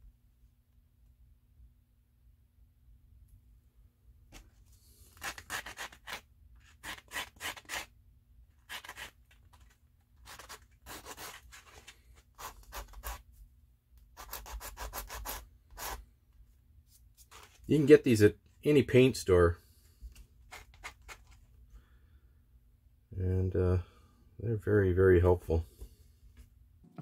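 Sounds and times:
sanding plastic rubbing strokes: 5.1s - 7.9s, 8.6s - 13.2s, 14.2s - 16.0s.

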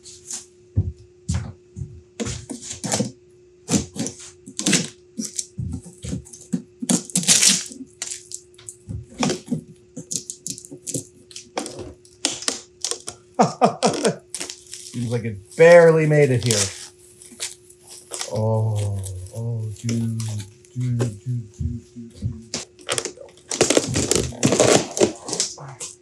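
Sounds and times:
packing tape tearing and crackling: 3.7s - 13.2s, 13.8s - 20.5s, 22.5s - 25.6s.

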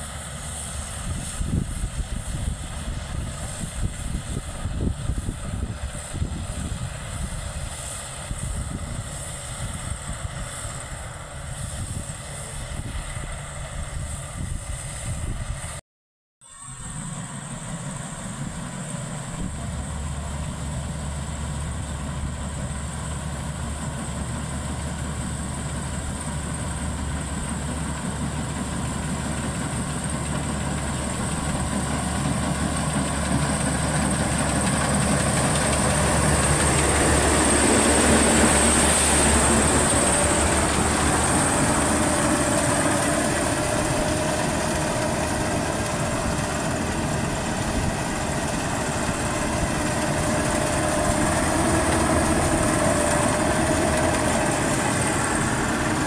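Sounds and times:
combine harvester running: 0.0s - 15.8s, 16.4s - 56.0s
steady machine whine: 16.4s - 56.0s.

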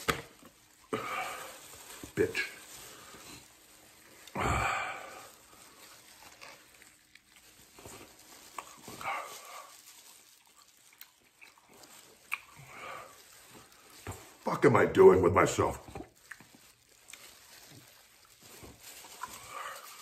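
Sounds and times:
man groaning in pain: 4.3s - 5.2s
man breathing: 4.3s - 6.0s.

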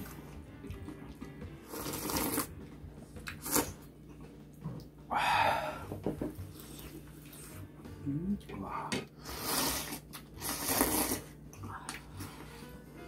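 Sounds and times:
people slurping noodles: 1.6s - 2.5s, 9.2s - 11.4s.

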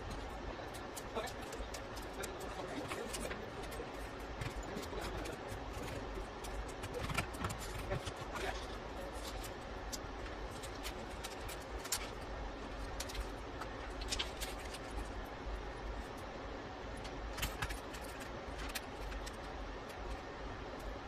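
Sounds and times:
steady background hum: 0.0s - 21.0s.

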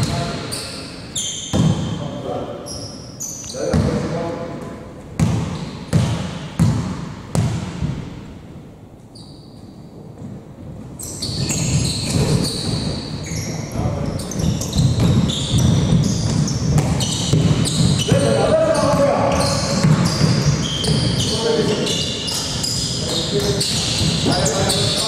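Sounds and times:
shoes squeaking on court: 0.0s - 4.1s, 5.2s - 7.6s, 9.0s - 10.0s, 10.9s - 25.0s
basketball dribbling: 5.2s - 8.0s, 11.3s - 25.0s.

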